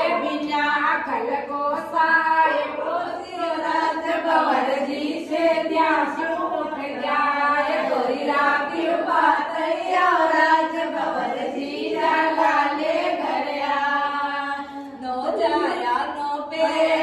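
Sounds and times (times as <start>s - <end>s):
women singing in unison: 0.0s - 17.0s.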